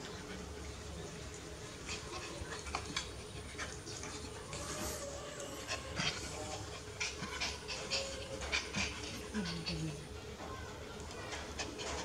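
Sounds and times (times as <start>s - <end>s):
dog panting: 1.8s - 10.2s.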